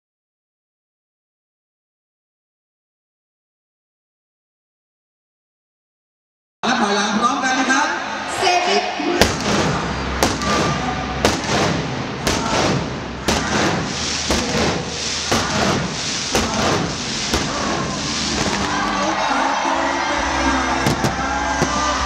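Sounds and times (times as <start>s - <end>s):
stadium crowd noise: 6.6s - 22.0s
sharp bangs: 9.2s - 19.2s, 20.8s - 22.0s.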